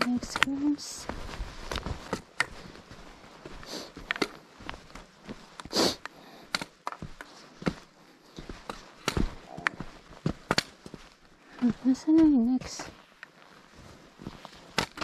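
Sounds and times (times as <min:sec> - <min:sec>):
footsteps and scuffs: 0:00.0 - 0:15.0
person sniffing: 0:03.6 - 0:04.0, 0:05.7 - 0:06.4.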